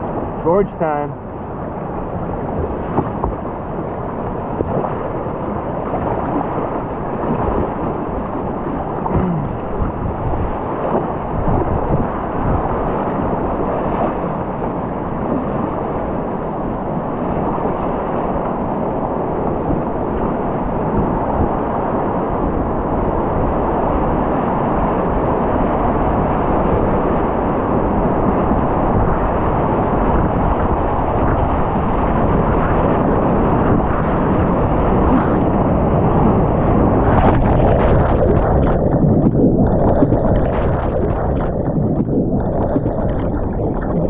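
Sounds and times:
muffled underwater sound: 0:00.0 - 0:17.7, 0:26.8 - 0:44.0
wind buffeting microphone: 0:00.0 - 0:44.0.

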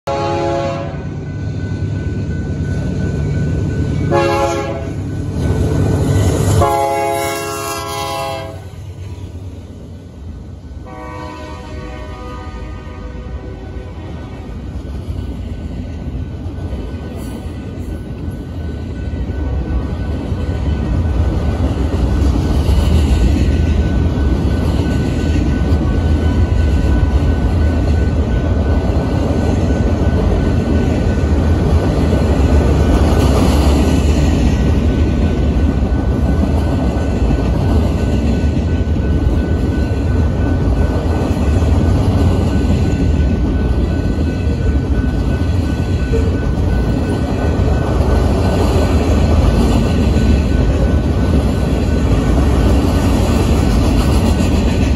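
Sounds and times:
train wheels rumbling on rail: 0:00.0 - 0:54.9.

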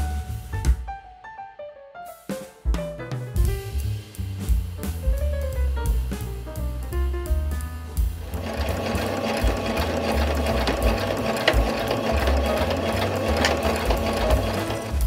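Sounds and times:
background music: 0:00.0 - 0:15.0
sewing machine stitching: 0:08.2 - 0:15.0.

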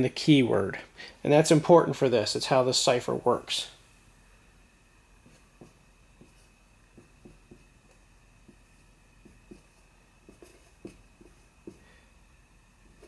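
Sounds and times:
marker writing on a whiteboard: 0:05.2 - 0:12.0, 0:12.7 - 0:13.0.

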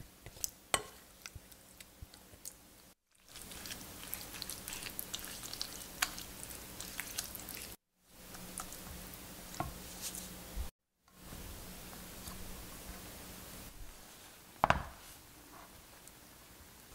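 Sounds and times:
spatula squishing wet mix: 0:00.0 - 0:10.4.

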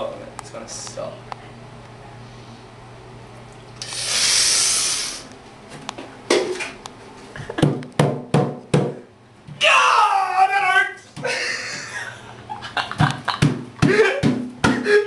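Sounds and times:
loud rushing hiss: 0:03.8 - 0:05.3
knocks and thumps against bathtub: 0:07.6 - 0:09.0, 0:13.0 - 0:14.9
person crying out in pain: 0:13.9 - 0:15.0.

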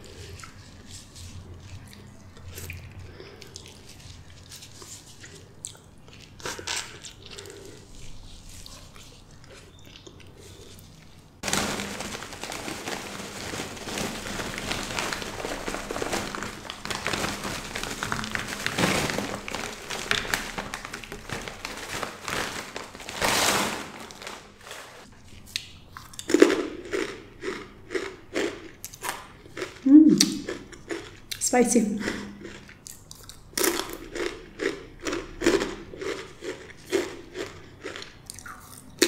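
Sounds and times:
foil snack bag crinkling: 0:11.4 - 0:25.1.

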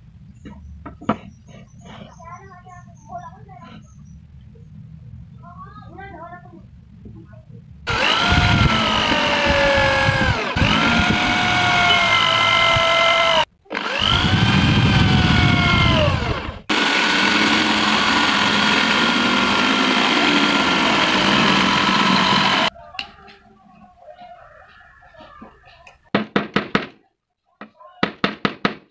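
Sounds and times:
electric drill boring into wood: 0:07.9 - 0:22.7.

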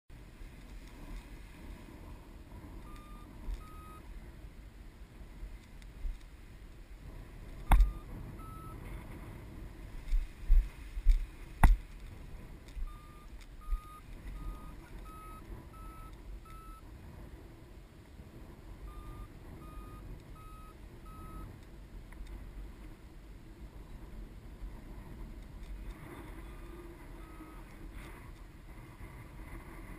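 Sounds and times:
wind on microphone: 0:00.2 - 0:29.9
variometer high beeps: 0:02.8 - 0:04.1, 0:07.7 - 0:08.8, 0:12.8 - 0:16.8, 0:18.8 - 0:21.5, 0:26.4 - 0:27.7.

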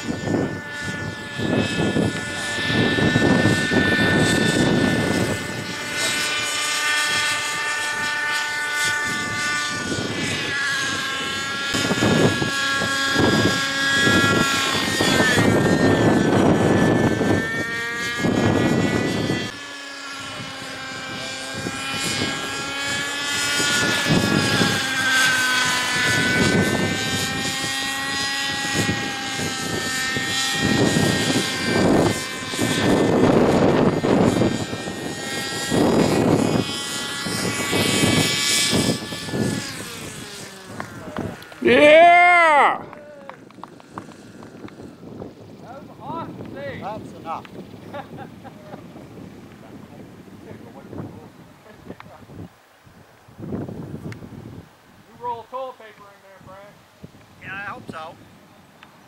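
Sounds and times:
model helicopter engine whine: 0:00.0 - 0:59.0
wind buffeting microphone: 0:00.0 - 0:59.0.

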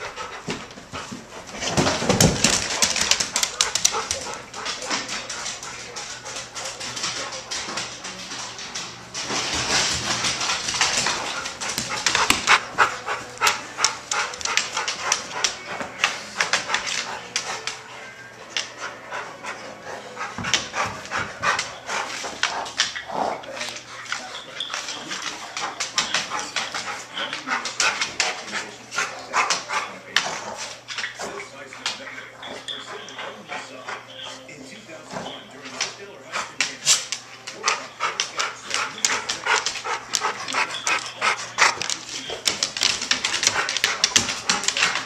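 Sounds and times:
dogs panting: 0:00.0 - 0:45.0
dogs scuffling: 0:00.0 - 0:45.0
claws clicking on hardwood floor: 0:00.5 - 0:17.8, 0:36.6 - 0:45.0.

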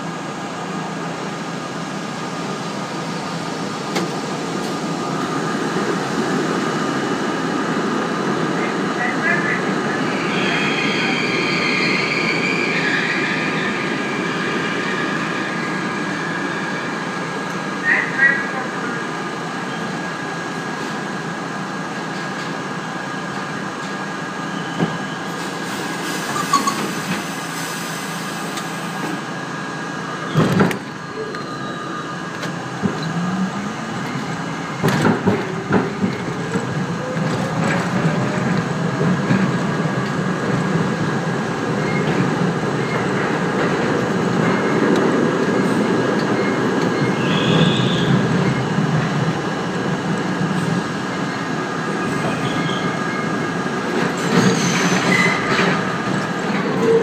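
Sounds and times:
train equipment hum: 0:28.2 - 0:57.0.

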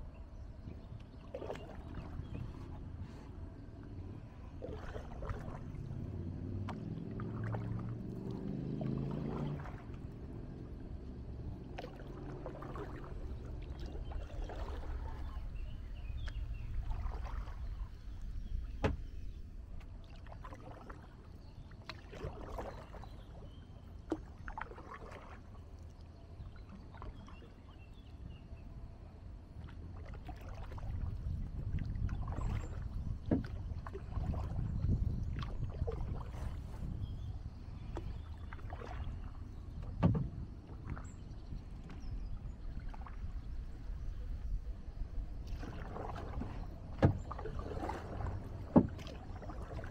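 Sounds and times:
paddle splashing in water: 0:00.4 - 0:28.7, 0:29.3 - 0:49.9
steady low rumble: 0:01.8 - 0:21.4.

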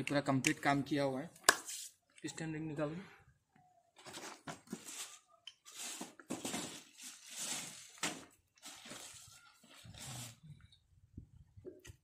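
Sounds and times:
rustling and handling noise: 0:04.0 - 0:10.5.

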